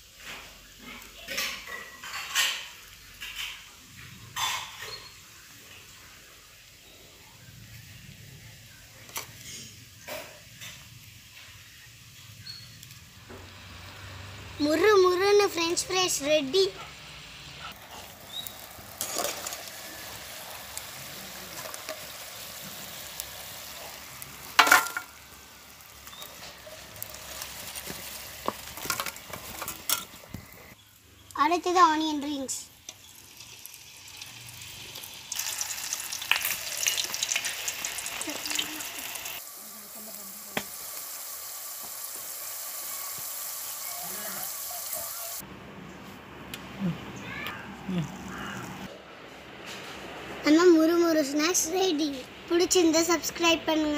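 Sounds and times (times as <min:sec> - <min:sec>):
fries sizzling in hot oil: 0:00.0 - 0:45.4, 0:50.4 - 0:53.9.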